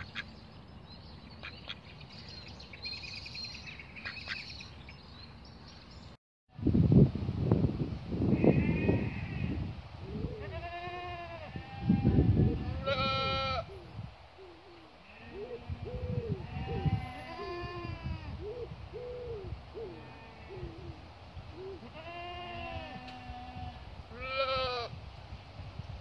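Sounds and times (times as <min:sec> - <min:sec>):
goat and lambs bleating: 0:10.4 - 0:13.6, 0:21.8 - 0:24.9.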